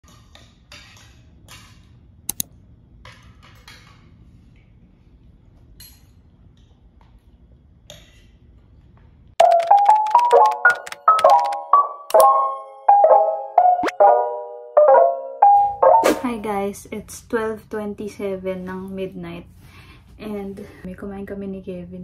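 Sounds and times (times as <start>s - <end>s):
chiming tune: 9.4s - 16.4s.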